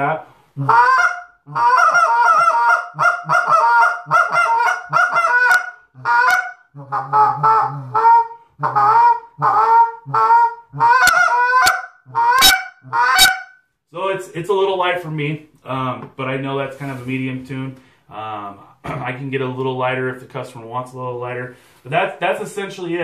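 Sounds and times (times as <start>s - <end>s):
goose call honks and clucks: 0.0s - 13.5s.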